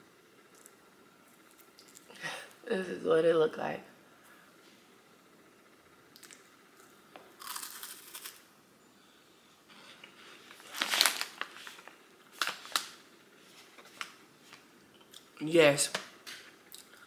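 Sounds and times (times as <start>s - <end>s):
wafer packet crinkling: 10.4s - 13.0s.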